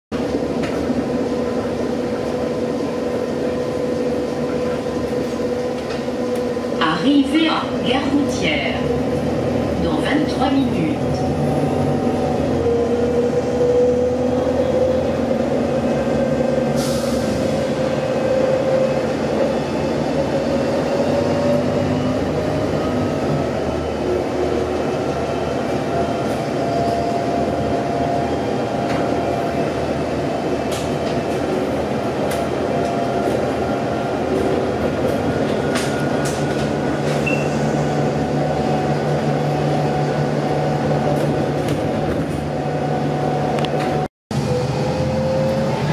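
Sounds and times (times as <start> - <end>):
bus engine drone: 0.1 - 45.9
rattles from bus body: 34.2 - 37.6.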